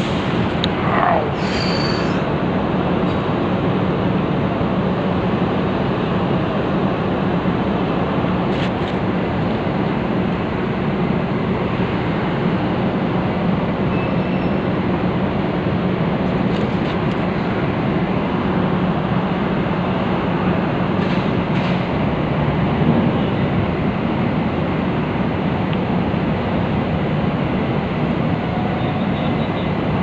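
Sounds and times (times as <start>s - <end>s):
ship engines rumbling: 0.0s - 8.5s.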